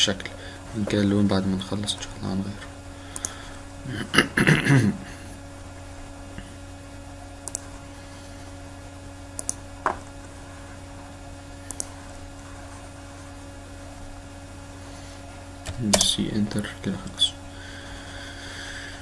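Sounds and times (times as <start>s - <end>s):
low electrical hum: 0.0s - 19.0s
computer mouse clicking: 3.1s - 3.4s, 7.4s - 7.7s, 9.4s - 9.6s, 11.6s - 12.0s.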